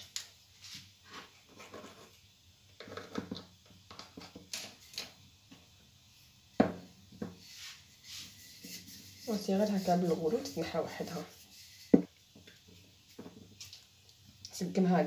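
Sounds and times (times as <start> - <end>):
rolling pin knocking on dish rim: 11.9 - 12.1.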